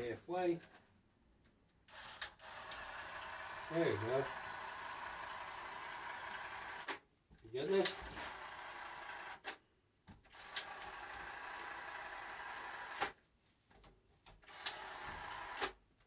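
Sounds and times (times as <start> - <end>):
electric caulk gun motor: 1.9 - 7.0, 7.9 - 9.6, 10.3 - 13.2, 14.4 - 15.8.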